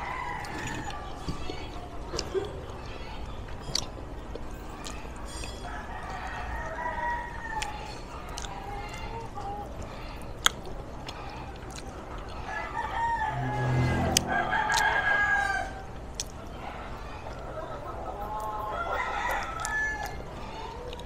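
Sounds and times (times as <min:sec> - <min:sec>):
rooster crowing: 0:00.0 - 0:01.2, 0:05.6 - 0:07.9, 0:12.4 - 0:16.0, 0:18.6 - 0:20.2
chicken clucking: 0:00.0 - 0:21.0.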